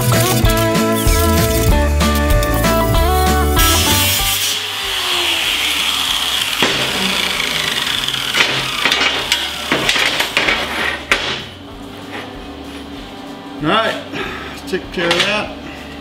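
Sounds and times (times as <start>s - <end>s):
angle grinder whine: 0.0s - 11.1s.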